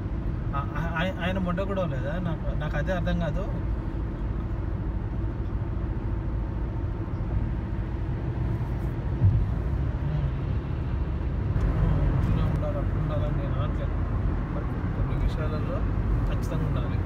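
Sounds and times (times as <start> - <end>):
car road and engine noise: 0.0 - 17.0
car bump: 9.1 - 9.7.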